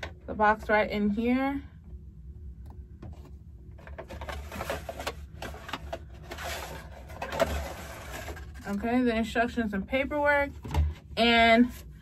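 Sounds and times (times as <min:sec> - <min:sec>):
cardboard and paper rustling: 0:03.1 - 0:09.0.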